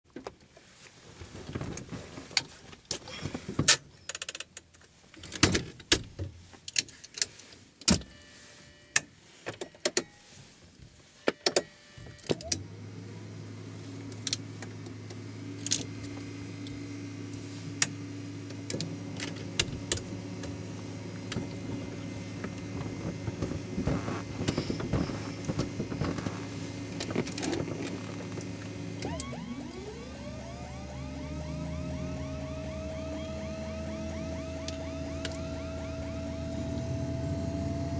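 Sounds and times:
electrical hum: 11.1 - 37.9
engine starter whine: 11.2 - 37.9
cockpit switches clicking: 34.6 - 36.0.

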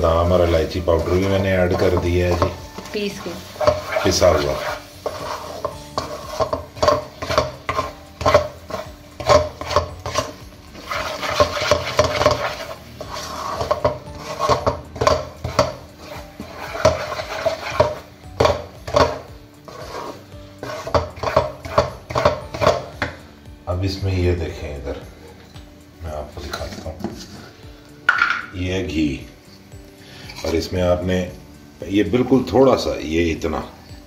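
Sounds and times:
wooden spatula scraping a pan: 0.0 - 23.2, 26.2 - 28.4, 30.0 - 31.0.

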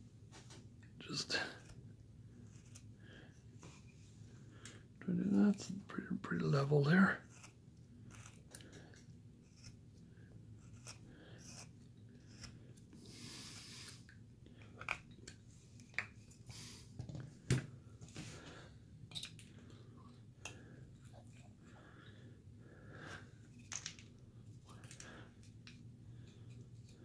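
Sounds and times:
carving blade cutting wood: 7.2 - 8.5, 10.6 - 12.6.

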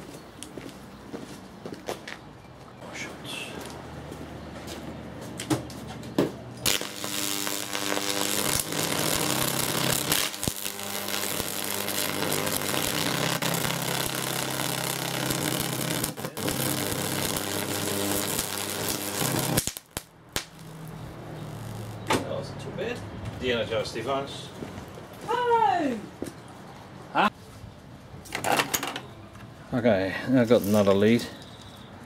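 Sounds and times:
electric arc crackling buzz: 6.6 - 22.1.

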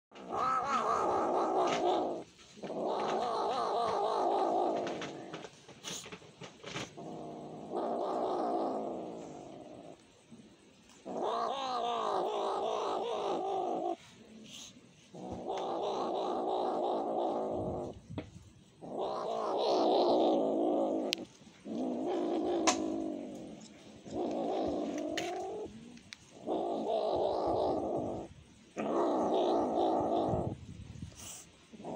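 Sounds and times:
kitten growl-yowling: 0.2 - 5.1, 7.0 - 10.0, 11.0 - 14.0, 15.2 - 18.0, 18.8 - 25.7, 26.4 - 30.6.

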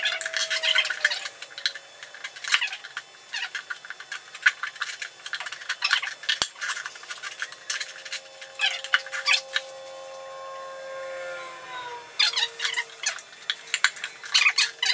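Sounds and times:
screwdriver scraping metal rim: 4.6 - 14.9.

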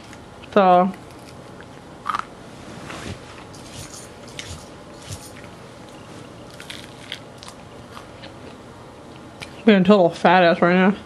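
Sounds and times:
person chewing food: 3.6 - 9.5.

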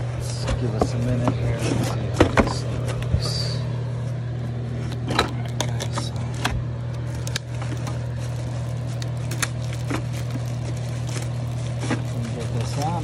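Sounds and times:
steady low hum: 0.0 - 13.0
crackles: 4.9 - 13.0
plastic wrapping crinkling: 7.0 - 13.0
cardboard scraping: 7.5 - 13.0.

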